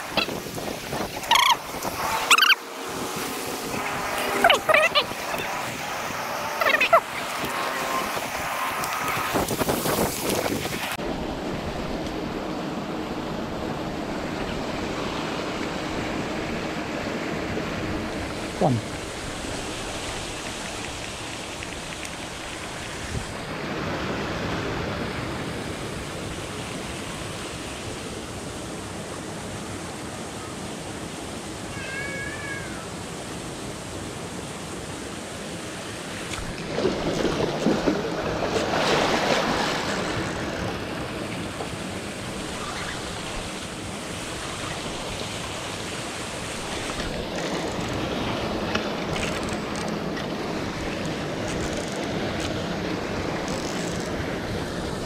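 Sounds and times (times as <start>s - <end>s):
fountain aerator spraying: 0.0s - 11.0s
short wavering call: 1.3s - 2.6s.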